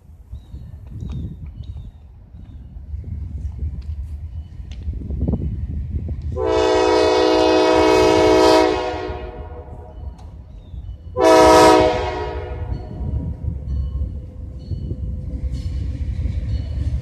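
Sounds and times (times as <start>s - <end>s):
locomotive air horn blasts: 6.4s - 10.0s, 11.2s - 13.0s.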